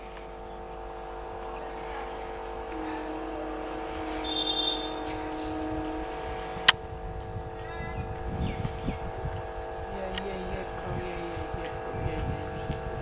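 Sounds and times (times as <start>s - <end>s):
long steady tone: 0.0s - 13.0s
steady hum: 0.0s - 13.0s
brief shrill high sound: 3.8s - 6.2s.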